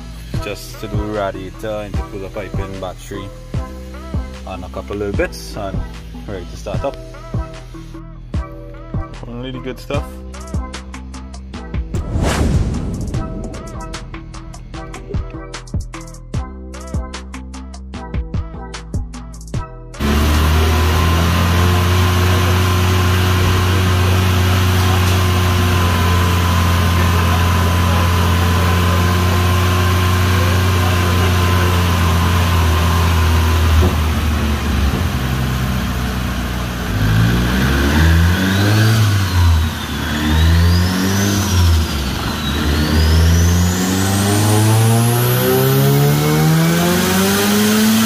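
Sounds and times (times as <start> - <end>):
car engine revving: 12.0 - 15.4, 20.0 - 48.0.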